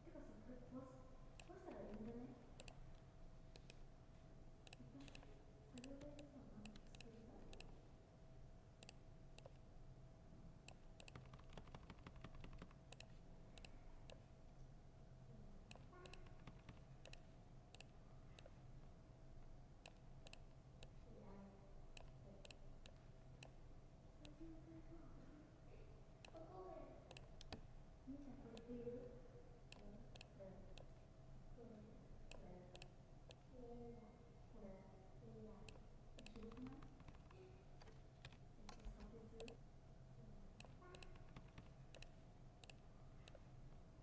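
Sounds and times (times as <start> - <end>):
laptop keyboard typing: 1.4 - 3.8, 4.6 - 7.8, 8.8 - 9.6, 10.7 - 14.3, 15.7 - 18.5, 35.7 - 39.6, 40.6 - 43.5.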